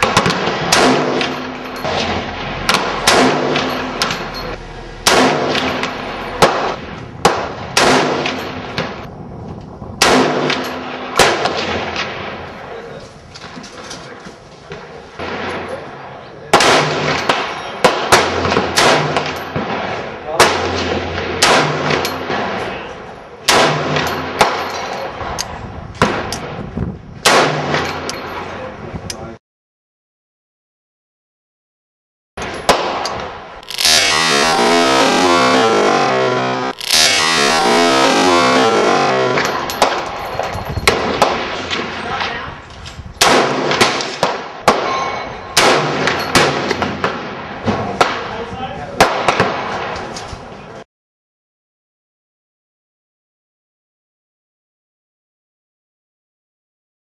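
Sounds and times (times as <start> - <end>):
heavy rifle shots: 0.0 - 9.1, 10.0 - 12.5, 16.5 - 25.4, 27.2 - 28.2, 32.4 - 42.4, 43.2 - 48.4
sharp quieter cracks: 0.0 - 9.1, 32.4 - 40.2.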